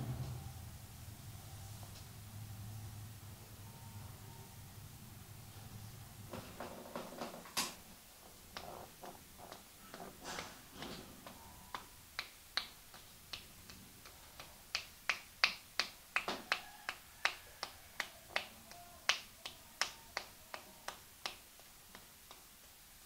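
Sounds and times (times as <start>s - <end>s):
sharp snapping clicks from hands: 11.2s - 22.5s.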